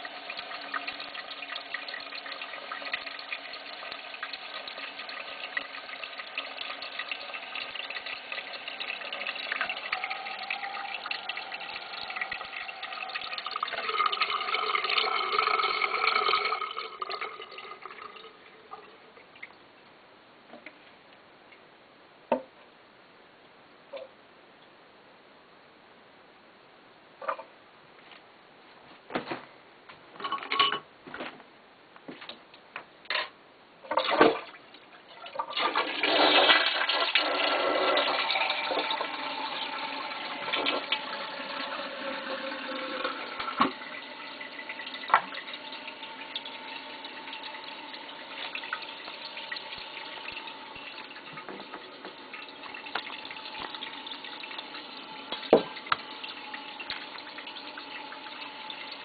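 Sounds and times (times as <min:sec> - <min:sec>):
toilet tank refilling hiss: 0:00.0 - 0:19.0, 0:35.1 - 0:59.0
toilet flushing: 0:00.0 - 0:19.5, 0:33.9 - 0:59.0.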